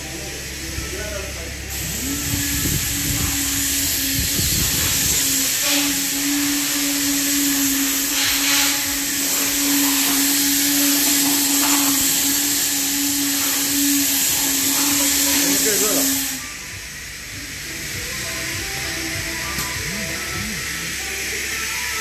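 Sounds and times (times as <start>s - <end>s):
electric motor hum: 0.0s - 22.0s
loud hiss of rushing air: 0.6s - 22.0s.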